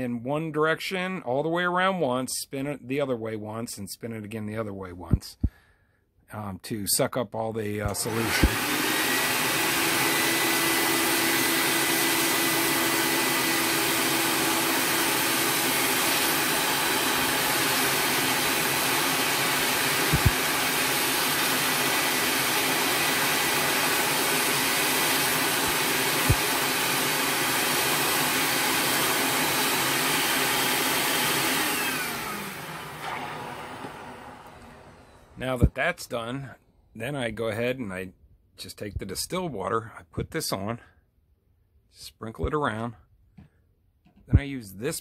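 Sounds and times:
shop vac running: 7.8 - 35.7
vacuum winding down: 7.8 - 35.8.

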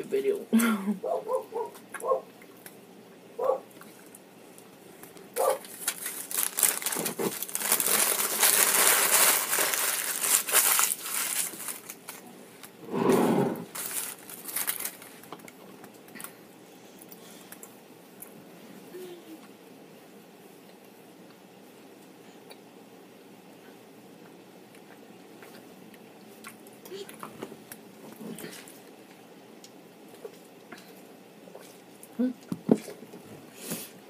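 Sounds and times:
paper being crumpled: 5.4 - 12.7, 13.7 - 15.3.

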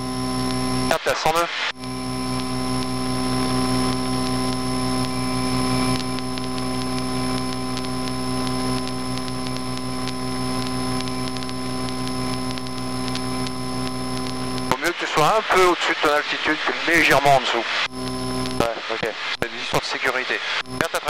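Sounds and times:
propeller aircraft engine droning: 1.8 - 15.1.

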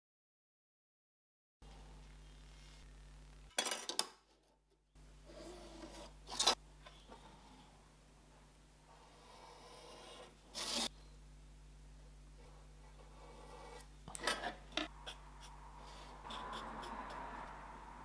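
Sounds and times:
steady low hum: 1.6 - 3.5, 4.9 - 18.0
metal scribe scratching: 9.7 - 10.9, 13.0 - 17.8.

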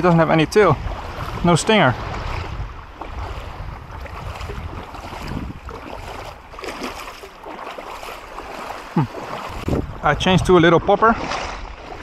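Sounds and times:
shallow seawater washing: 0.0 - 12.0
wind rumbling on microphone: 0.0 - 12.0
small faint splashes: 2.1 - 9.8.

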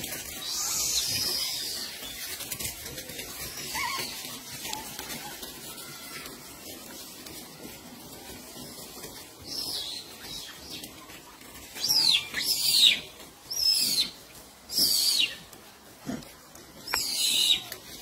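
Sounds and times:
high-pitched animal squeaks: 3.6 - 6.2.

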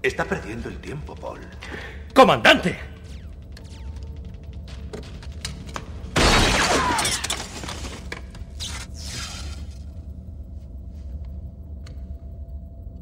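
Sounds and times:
falling glass fragments: 6.2 - 8.0
glass breaking: 6.2 - 8.0.

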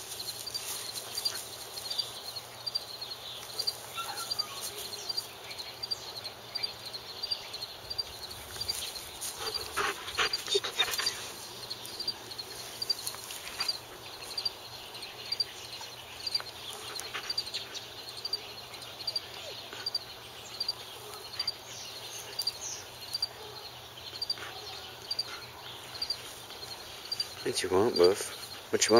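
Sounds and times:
crickets chirping: 0.0 - 28.9
wolf short vocal noises: 9.4 - 11.4.

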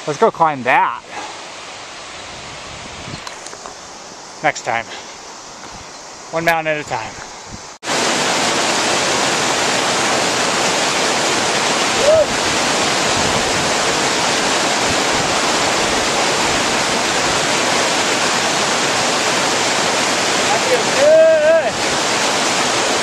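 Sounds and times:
water pouring over rocks: 7.9 - 23.0.

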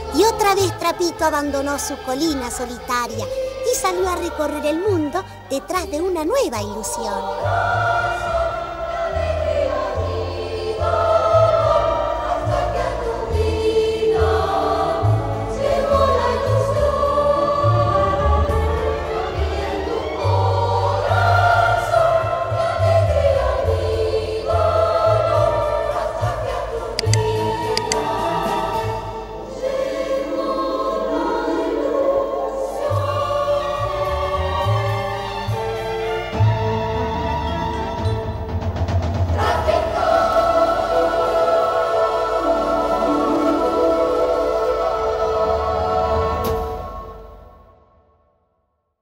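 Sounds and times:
choir singing slow melody: 0.0 - 6.0, 6.7 - 38.2, 39.1 - 48.0
instrumental accompaniment: 27.0 - 30.0.

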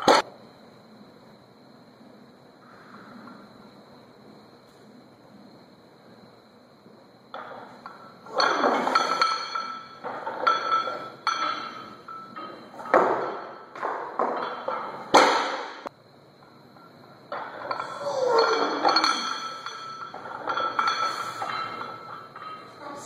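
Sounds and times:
barbell crashing on floor: 0.0 - 0.2, 7.4 - 15.9, 17.3 - 22.6
barbell plates clanking: 7.3 - 23.0.

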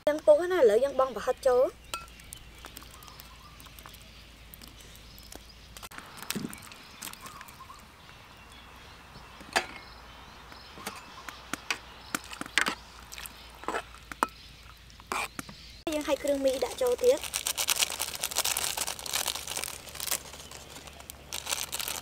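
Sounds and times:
stew simmering: 0.4 - 17.0
sharp clicks and pops: 1.9 - 8.2, 10.5 - 22.0.

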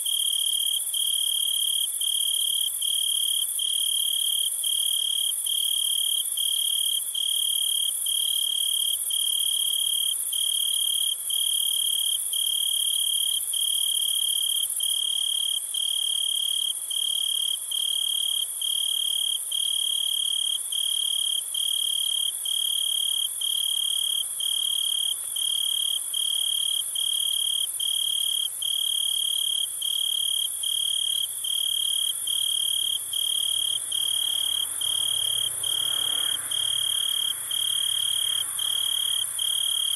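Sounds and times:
insects chirping: 24.9 - 39.9.

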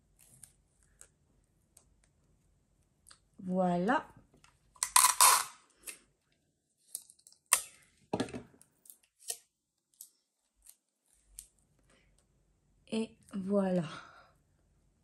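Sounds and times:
adhesive tape tearing: 4.8 - 5.6
tape handling noises: 4.8 - 6.0.

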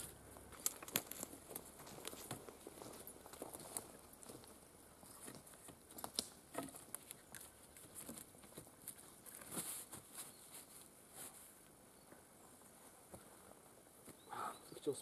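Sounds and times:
dry branches crackling and snapping: 0.0 - 10.2
forest litter rustling: 0.0 - 11.7.

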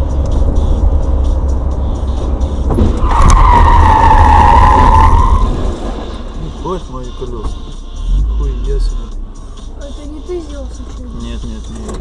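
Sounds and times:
road rumble inside a car: 0.0 - 12.0
tyres squealing in a skid: 2.8 - 7.7.

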